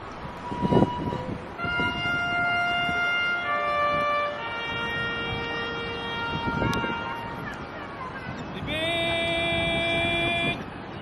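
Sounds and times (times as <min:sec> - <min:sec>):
brass instrument slow melody: 0:00.5 - 0:07.4.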